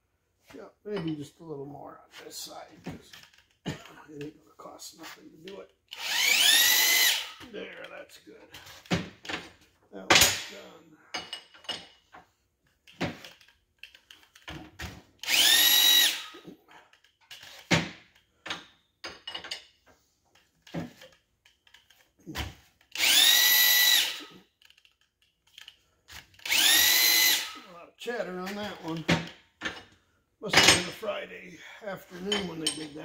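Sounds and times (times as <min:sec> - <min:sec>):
electric drill whining: 0:05.9 - 0:07.4, 0:15.2 - 0:16.5, 0:22.9 - 0:24.5, 0:26.2 - 0:27.7
metal clinks and knocks: 0:10.2 - 0:12.2, 0:18.4 - 0:22.1, 0:32.2 - 0:33.0.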